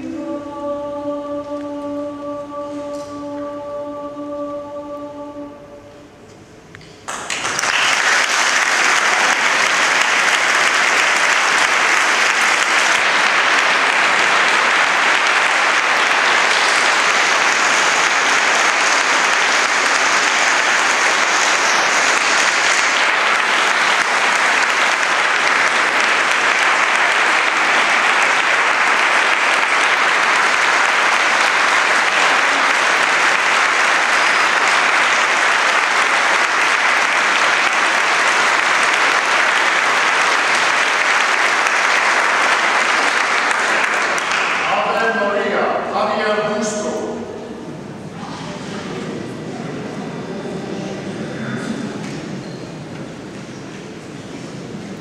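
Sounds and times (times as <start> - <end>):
audience applauding: 7.1 - 45.4.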